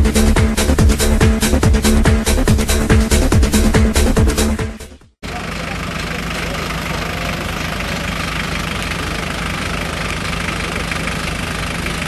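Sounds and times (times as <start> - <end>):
vehicle engine idling: 5.2 - 12.0.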